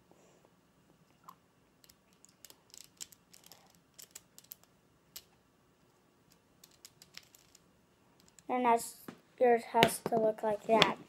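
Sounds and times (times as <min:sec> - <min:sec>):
puzzle cube plastic clicks: 0:01.8 - 0:05.3, 0:06.3 - 0:07.6, 0:08.2 - 0:08.5.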